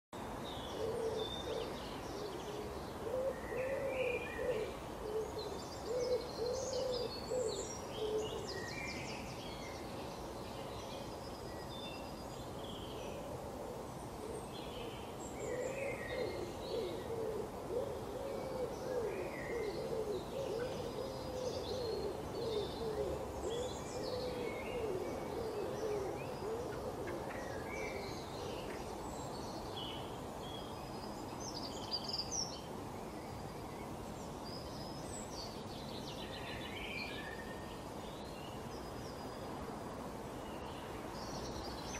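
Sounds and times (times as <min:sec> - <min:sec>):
songbirds chirping: 0:00.2 - 0:41.9
low wavering bird hoot: 0:00.7 - 0:08.6, 0:15.4 - 0:28.8.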